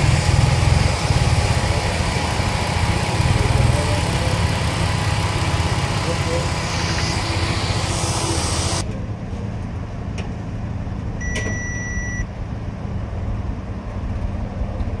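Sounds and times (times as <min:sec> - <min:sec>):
car engine idling: 0:00.0 - 0:09.0
dashboard chime beep: 0:11.2 - 0:12.2.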